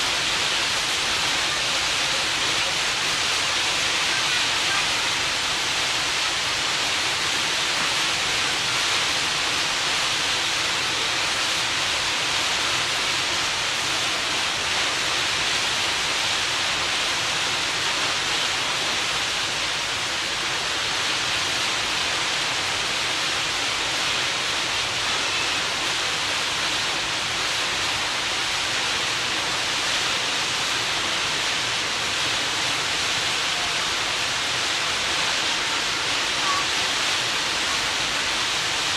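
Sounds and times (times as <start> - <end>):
water rushing in ferry wake: 0.0 - 38.9.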